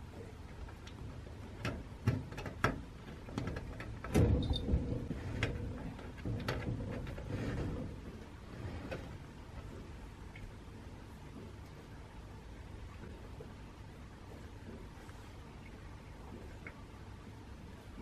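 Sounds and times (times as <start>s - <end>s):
sliding door knocking and rattling: 1.5s - 9.2s.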